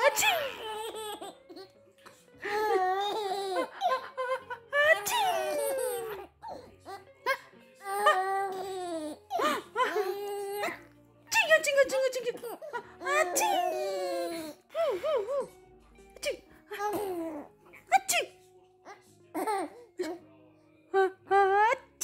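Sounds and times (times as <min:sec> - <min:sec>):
baby laughing and squealing: 0:00.0 - 0:01.7, 0:02.4 - 0:10.8, 0:12.4 - 0:14.6.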